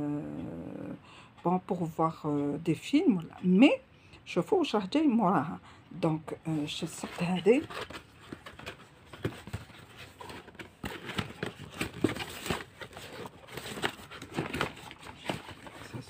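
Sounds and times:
cardboard box being opened: 7.0 - 16.0.

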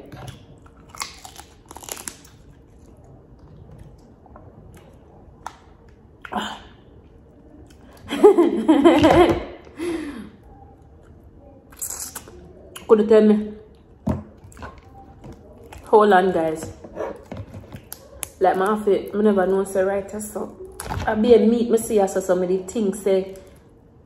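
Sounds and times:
quiet chewing: 0.0 - 8.1, 10.4 - 12.9, 13.6 - 15.9, 16.7 - 18.6.

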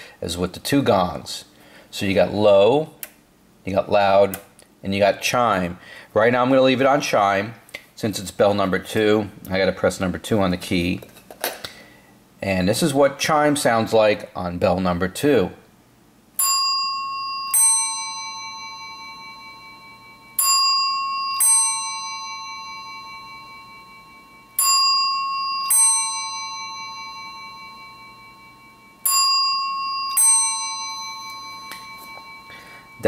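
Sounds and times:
two-note telephone chime: 16.4 - 33.0.

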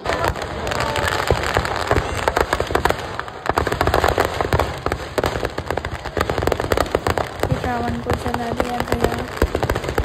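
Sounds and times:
firecrackers going off: 0.0 - 10.0.

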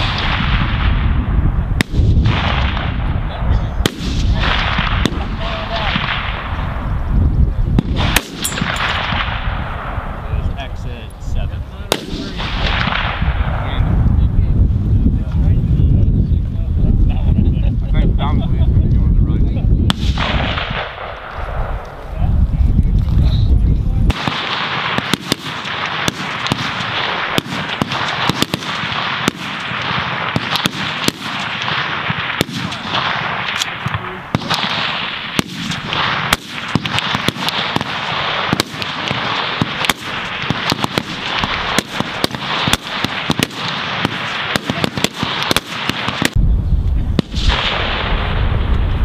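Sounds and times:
rifle shots: 0.0 - 1.2, 1.8 - 6.7, 7.8 - 10.2, 11.9 - 13.8, 19.9 - 21.9, 24.1 - 46.4, 47.2 - 48.7.

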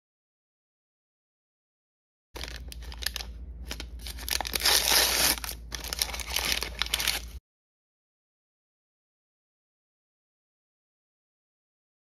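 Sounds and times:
plastic packet crinkling and tearing: 2.4 - 7.4.

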